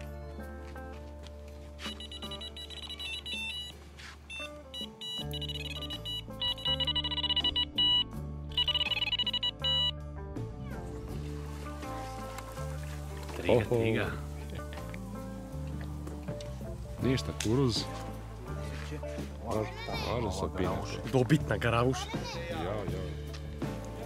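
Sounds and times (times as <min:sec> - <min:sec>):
background music with bass: 0:00.0 - 0:24.0
bite alarms beeping: 0:01.8 - 0:10.0.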